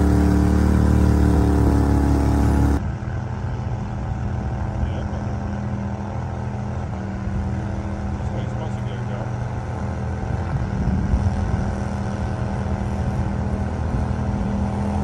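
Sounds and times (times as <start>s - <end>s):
boat pushing through vegetation: 0.0s - 2.8s
mud motor running at high revs: 0.0s - 3.2s, 4.0s - 15.0s.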